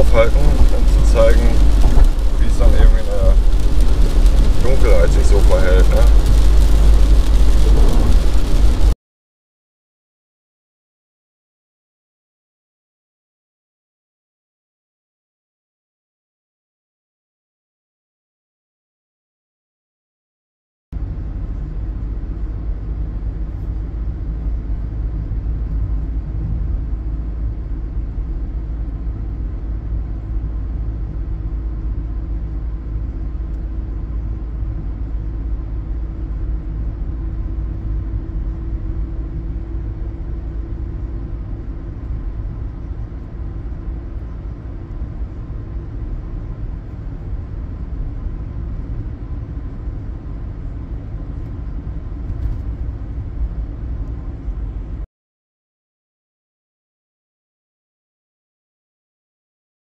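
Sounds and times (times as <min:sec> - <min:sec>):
road and engine rumble in car: 0:00.0 - 0:09.0, 0:21.0 - 0:55.1.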